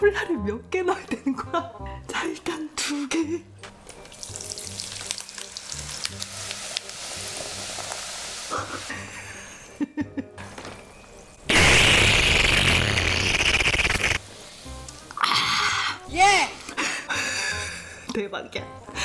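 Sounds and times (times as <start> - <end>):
soda fizzing over ice: 4.0 - 8.9
slurping through a straw: 11.5 - 14.2.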